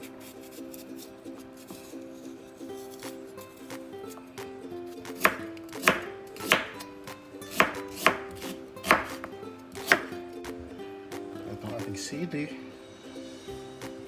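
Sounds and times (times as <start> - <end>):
light background music: 0.0 - 14.0
knife knocking on cutting board: 5.2 - 6.8, 7.6 - 8.2, 8.9 - 9.2.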